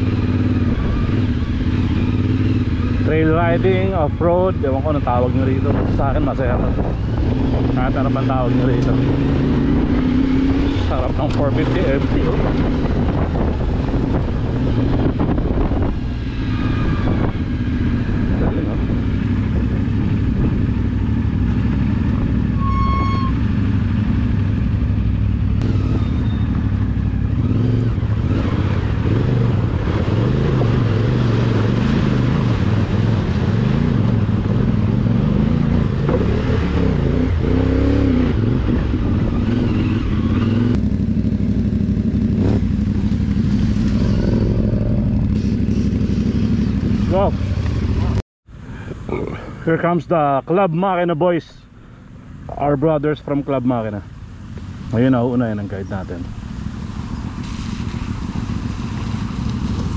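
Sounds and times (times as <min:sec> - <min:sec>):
motorcycle engine running: 0:00.0 - 0:48.2
short beep: 0:22.6 - 0:23.4.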